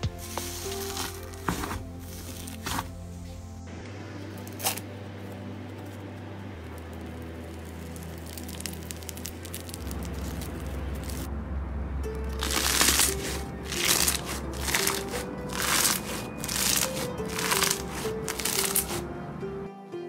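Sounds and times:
slime squishing: 7.5 - 11.3, 12.3 - 19.0.

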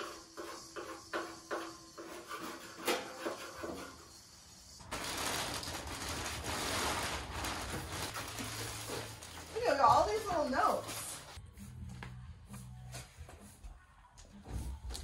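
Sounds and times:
plastic bag crinkling: 4.8 - 11.4.

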